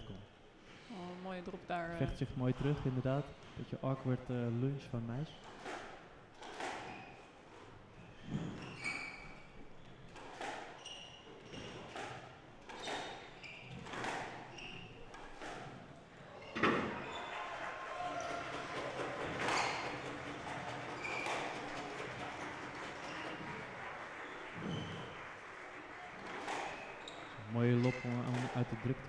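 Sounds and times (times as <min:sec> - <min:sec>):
squash ball hitting rackets and walls: 0:05.4 - 0:07.2, 0:08.2 - 0:15.9, 0:18.2 - 0:23.7, 0:26.2 - 0:27.4
shoe squeaks on wooden floor: 0:08.0 - 0:15.7, 0:21.0 - 0:21.7, 0:22.9 - 0:23.6, 0:24.2 - 0:25.2, 0:26.2 - 0:28.4.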